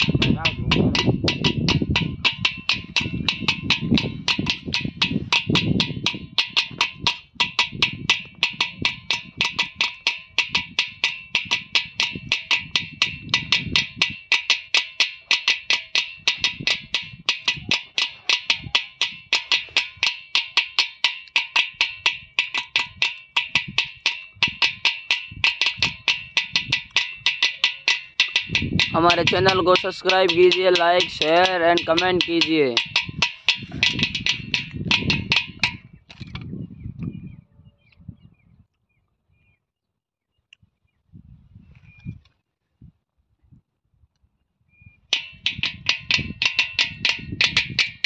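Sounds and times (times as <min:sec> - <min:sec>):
deep drum booms: 0:00.0 - 0:09.8
clay pot drum strokes: 0:00.0 - 0:35.8, 0:45.1 - 0:48.0.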